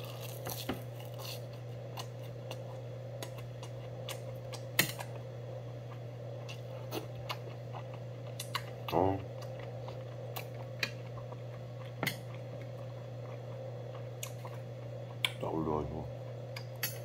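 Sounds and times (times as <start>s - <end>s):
chewing: 5.9s - 15.4s.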